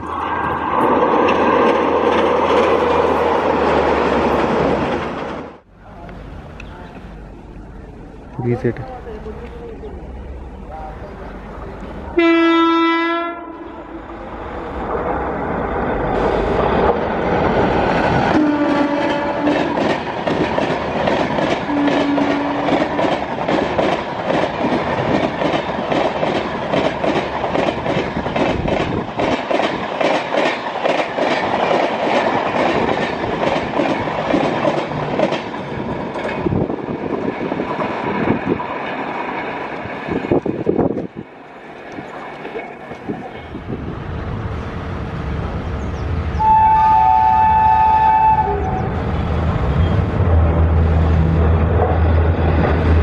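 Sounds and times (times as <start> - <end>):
train rumble: 0.0 - 53.0
train horn blast: 12.1 - 14.0, 18.3 - 19.8, 21.7 - 22.8, 46.4 - 49.2
wheels clacking over rail joints: 17.8 - 43.6.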